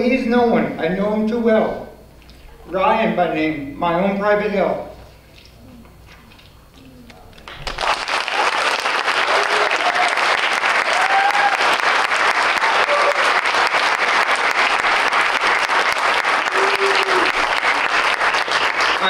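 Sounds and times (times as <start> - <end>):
audience applauding: 7.4 - 19.0.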